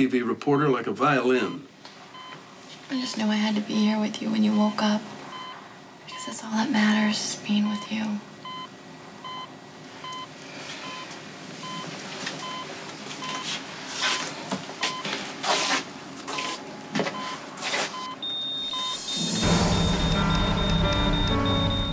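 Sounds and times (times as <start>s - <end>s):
heart monitor beeping: 1.4s - 2.4s, 5.3s - 6.4s, 8.4s - 15.1s, 16.4s - 21.9s
high-pitched monitor alarm: 18.0s - 21.9s
loud dramatic music: 19.0s - 21.9s.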